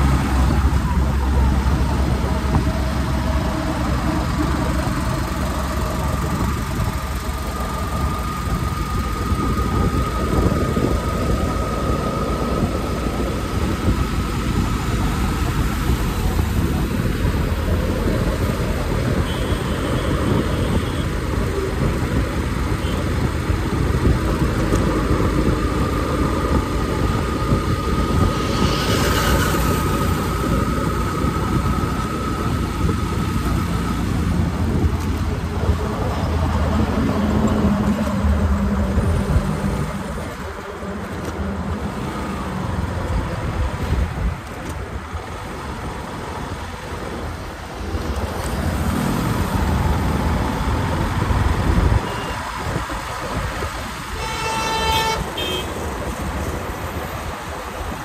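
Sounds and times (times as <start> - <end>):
road noise: 0.0 - 58.0
wind rushing over microphone: 0.0 - 58.0
motorcycle engine: 24.3 - 36.2.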